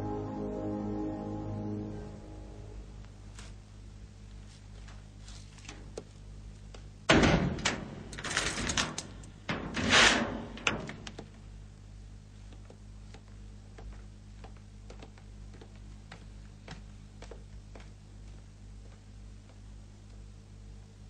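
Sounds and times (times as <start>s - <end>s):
low steady hum: 0.0s - 21.0s
door sliding and clattering: 7.1s - 11.3s.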